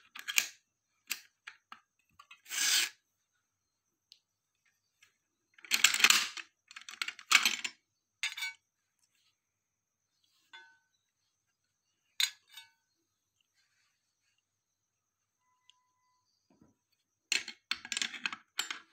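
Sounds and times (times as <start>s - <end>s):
metal parts scraping and sliding: 2.2s - 3.0s.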